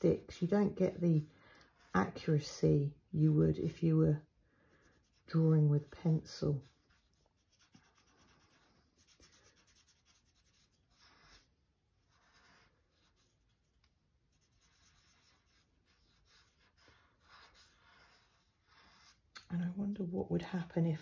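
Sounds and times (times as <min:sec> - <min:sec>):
pastel rubbing on paper: 0:03.8 - 0:20.0.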